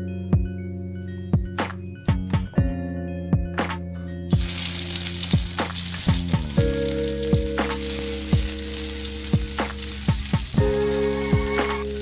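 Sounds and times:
shallots and garlic sizzling in oil: 0:04.3 - 0:12.0.

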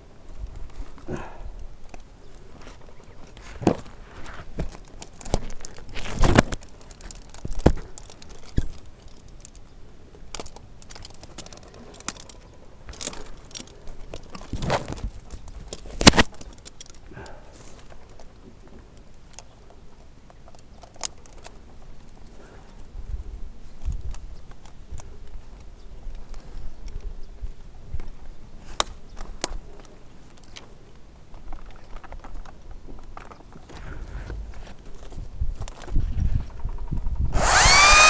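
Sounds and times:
twigs rustling: 0:00.0 - 0:36.7, 0:37.4 - 0:38.0
branches knocking: 0:02.6 - 0:09.6, 0:10.4 - 0:18.3
metal climbing hardware clinking: 0:03.8 - 0:22.4, 0:37.4 - 0:38.0.

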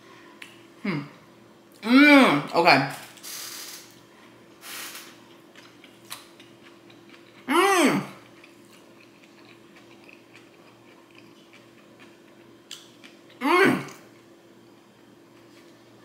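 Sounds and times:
man humming mmm: 0:00.8 - 0:01.2, 0:07.5 - 0:08.2, 0:13.4 - 0:14.0
man chewing food: 0:05.1 - 0:16.0.

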